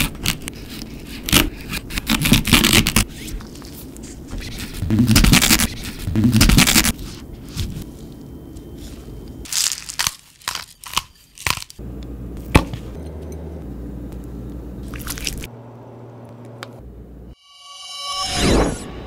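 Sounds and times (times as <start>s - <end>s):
low steady hum: 3.2s - 9.9s, 11.8s - 17.4s
cucumber crunching and clicks: 9.5s - 11.8s.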